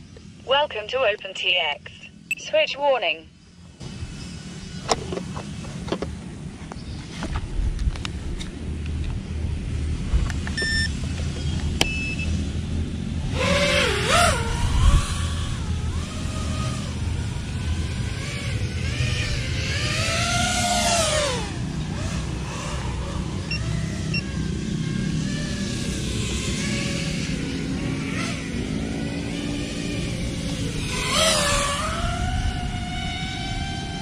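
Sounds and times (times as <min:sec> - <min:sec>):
low steady rumble: 0:00.0 - 0:34.0
short electronic beeps: 0:02.3 - 0:02.6, 0:10.6 - 0:10.9, 0:11.8 - 0:12.3
drone motors whining: 0:03.4 - 0:34.0.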